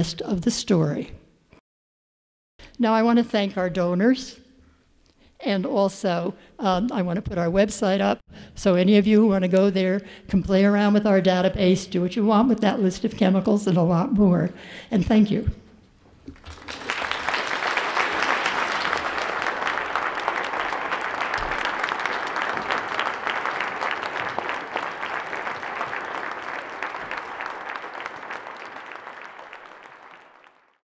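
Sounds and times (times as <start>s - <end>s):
audience applauding: 16.3s - 30.8s.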